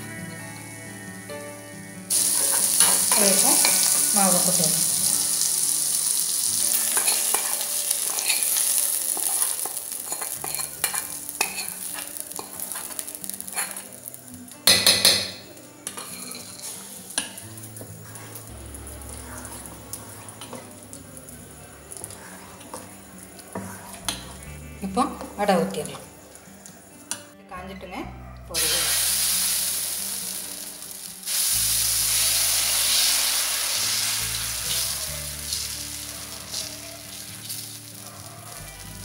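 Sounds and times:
food sizzling in hot oil: 0:02.1 - 0:27.2, 0:28.6 - 0:39.0
metal spoon scraping batter: 0:09.2 - 0:12.9, 0:13.5 - 0:13.9.

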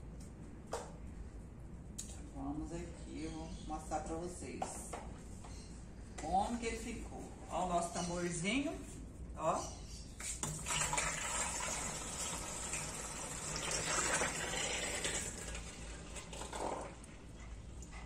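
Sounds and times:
thick liquid pouring into drum: 0:10.4 - 0:17.1.

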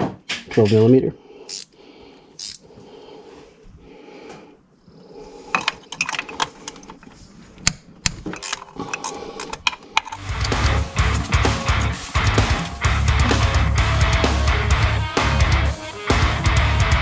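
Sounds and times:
wrench clicking on bolts: 0:01.5 - 0:01.7.

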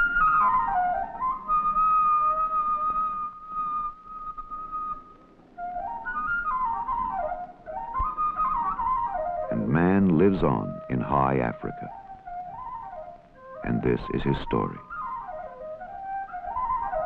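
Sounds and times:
solo flute melody: 0:00.0 - 0:11.0, 0:11.8 - 0:17.0.

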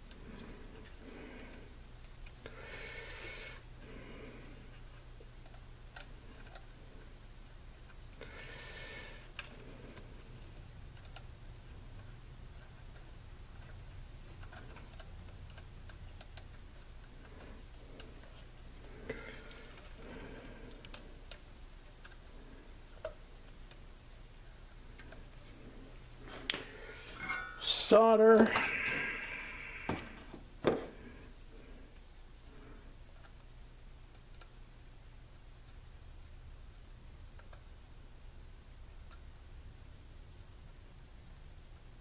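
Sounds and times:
low steady hum: 0:00.0 - 0:42.0.

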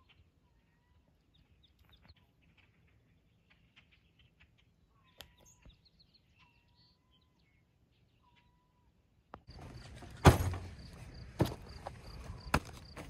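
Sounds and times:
steady outdoor hiss: 0:08.8 - 0:13.0.

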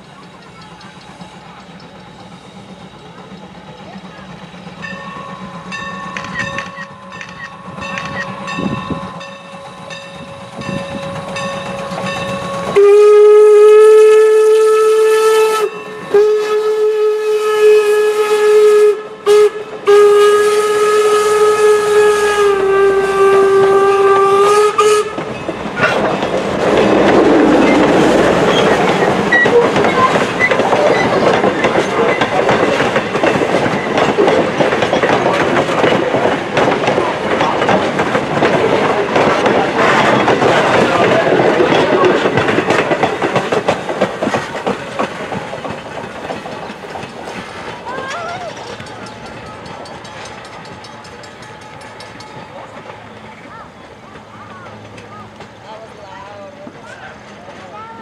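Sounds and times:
train rumble and wheel clatter: 0:00.0 - 0:58.0
steam locomotive whistle: 0:05.0 - 0:26.0.

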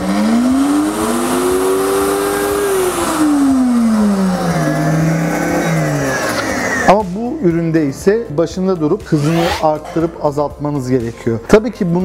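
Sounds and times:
blender motor running: 0:00.0 - 0:06.9, 0:09.2 - 0:09.7.

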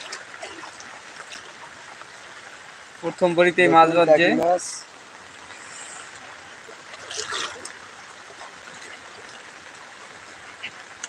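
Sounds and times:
burst of water noise: 0:00.0 - 0:01.7, 0:05.1 - 0:11.0
rain on floodwater: 0:00.0 - 0:11.0.

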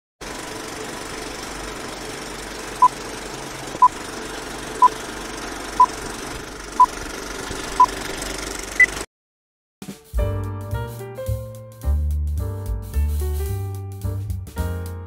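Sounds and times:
film projector running: 0:00.2 - 0:09.0.

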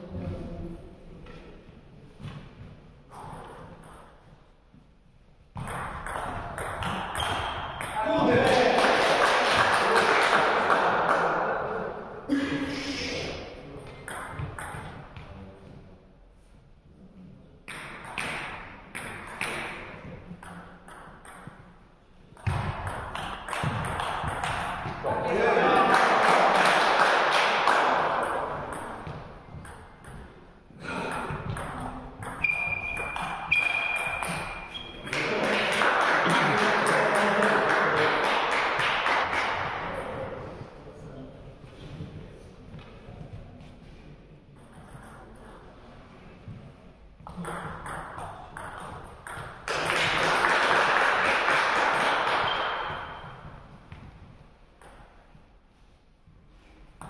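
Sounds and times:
spectators applauding: 0:08.3 - 0:11.4, 0:25.6 - 0:28.2, 0:35.1 - 0:39.7, 0:49.7 - 0:53.0
crowd noise: 0:25.0 - 0:29.4
high squeal: 0:32.4 - 0:35.1.

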